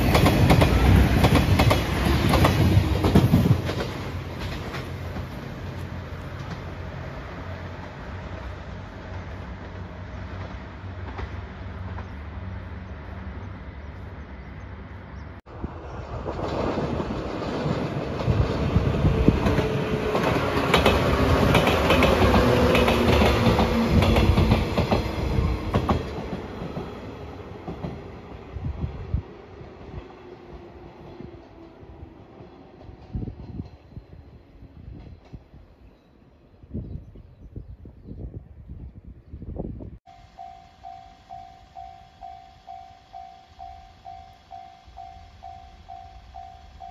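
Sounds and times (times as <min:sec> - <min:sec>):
train wheels clattering over rail joints: 0:00.0 - 0:06.9, 0:16.1 - 0:27.0
train hum: 0:00.0 - 0:46.9.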